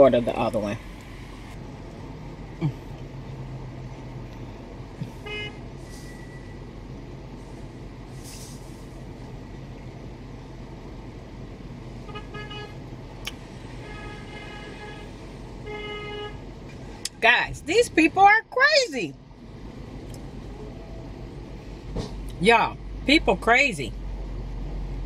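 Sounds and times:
car cabin hum: 0.0s - 5.7s
car horns honking: 5.0s - 6.1s, 12.0s - 12.8s, 13.7s - 16.5s.

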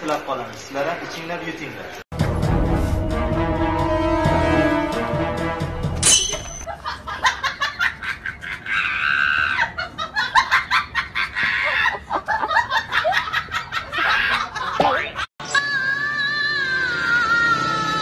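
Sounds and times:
person laughing and squealing: 6.7s - 15.3s.

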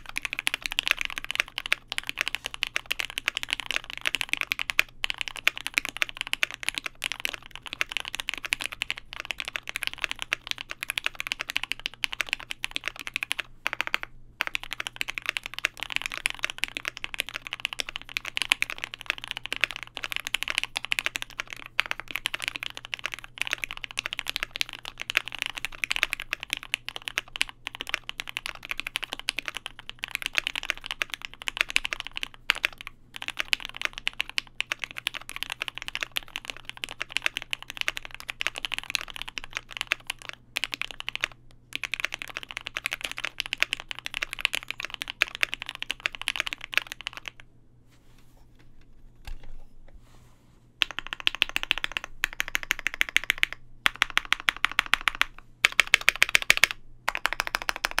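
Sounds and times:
mechanical keyboard typing: 0.0s - 47.4s, 50.8s - 58.0s.

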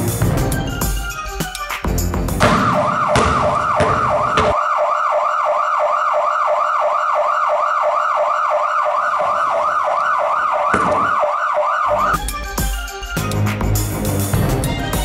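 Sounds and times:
music: 0.0s - 3.5s, 11.9s - 15.0s
siren-like yelp: 2.4s - 12.8s.

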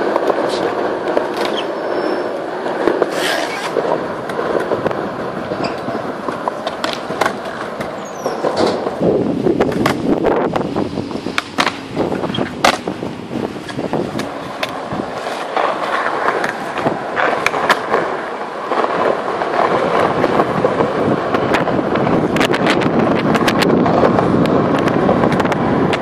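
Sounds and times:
skateboard clacks: 0.0s - 26.0s
skateboard wheels rolling on concrete: 0.0s - 26.0s.

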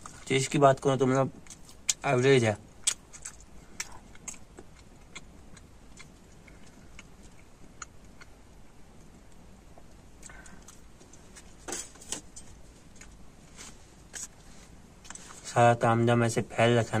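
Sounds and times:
person chewing: 1.4s - 2.0s, 2.8s - 11.5s, 12.1s - 15.4s.

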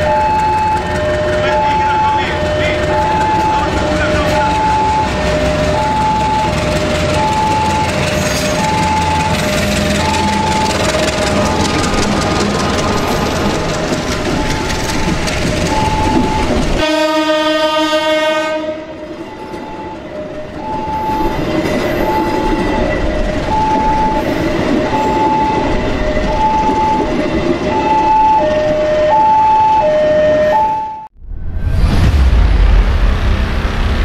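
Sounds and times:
level-crossing warning chime: 0.0s - 17.0s, 19.0s - 31.1s
train rolling past: 0.0s - 30.6s
train horn blast: 16.8s - 19.0s.

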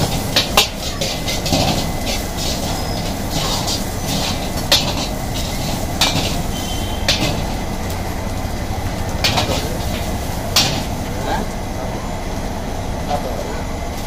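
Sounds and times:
metal ladle clanging on wok: 0.0s - 7.6s, 9.2s - 10.9s.

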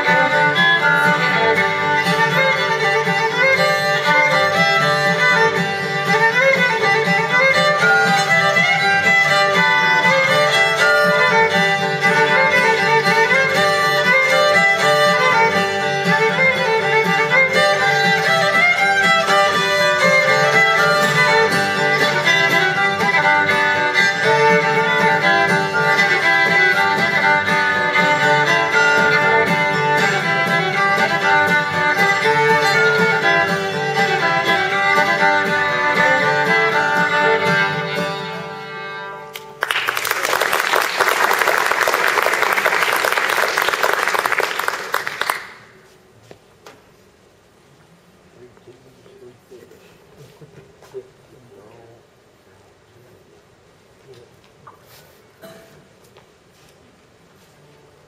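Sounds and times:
acoustic guitar: 0.0s - 40.0s, 54.1s - 58.0s
fiddle playing: 0.0s - 45.5s
audience applause: 39.4s - 45.8s.

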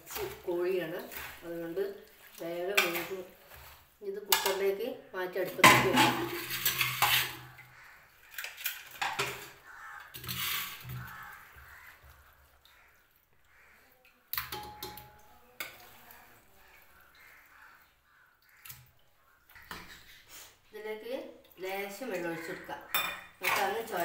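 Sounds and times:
metal spoon scraping metal bowl: 5.8s - 7.6s, 10.1s - 11.3s, 22.4s - 24.0s.

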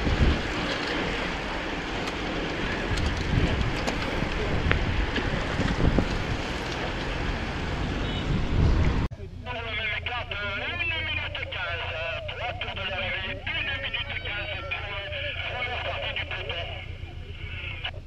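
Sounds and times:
wind buffeting microphone: 0.0s - 9.1s.

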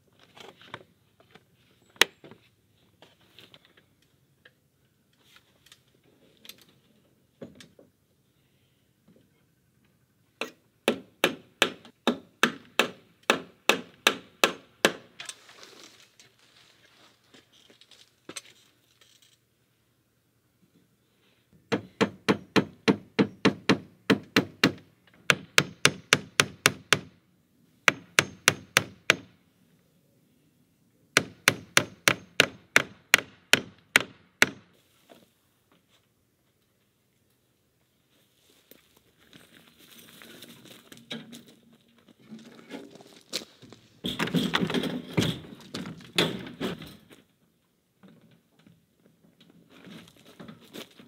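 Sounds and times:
hammer driving nails into wood: 10.4s - 15.1s, 21.7s - 27.1s, 27.9s - 29.3s, 31.2s - 34.7s.

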